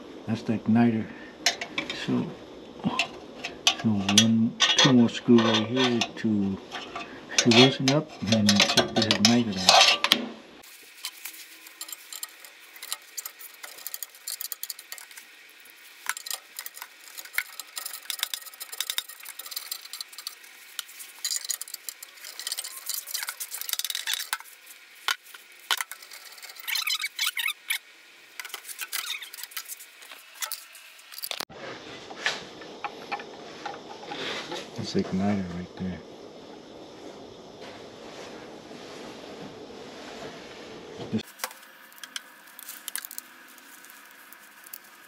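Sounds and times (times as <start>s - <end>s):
metal tool clinking on sheet metal: 6.8s - 10.2s.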